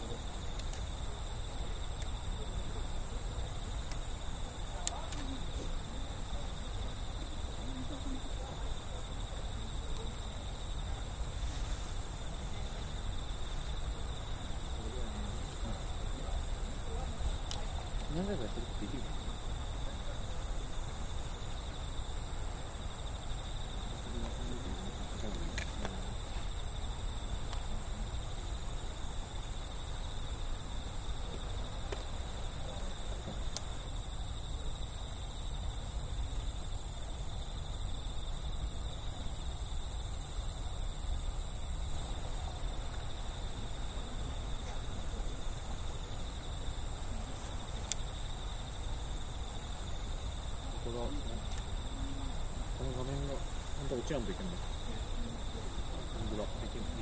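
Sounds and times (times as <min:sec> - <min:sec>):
high-pitched insect chorus: 0:00.0 - 0:57.0
faint ticks: 0:00.4 - 0:01.0, 0:01.6 - 0:02.2, 0:03.8 - 0:05.8, 0:17.3 - 0:18.2, 0:24.1 - 0:28.5, 0:31.2 - 0:32.2, 0:33.2 - 0:33.9, 0:44.3 - 0:45.9, 0:47.2 - 0:49.1, 0:51.0 - 0:56.0.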